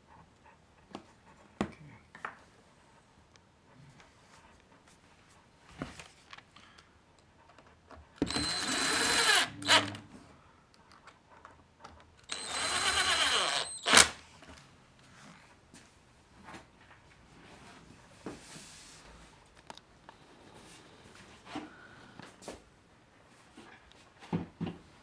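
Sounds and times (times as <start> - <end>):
cordless drill motor whine: 8.2 - 10.0, 12.3 - 14.1
sharp crack of screw: 12.3 - 14.2.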